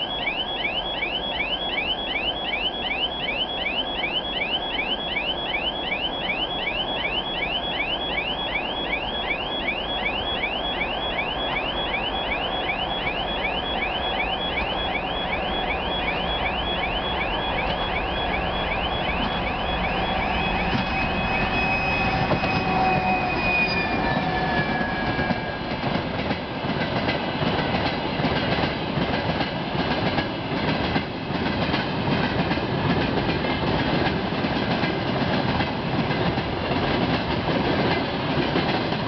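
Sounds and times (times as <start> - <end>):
high whine: 0.0 - 25.6
level crossing signal chirps: 0.0 - 25.6
diesel locomotive approaching: 0.0 - 39.0.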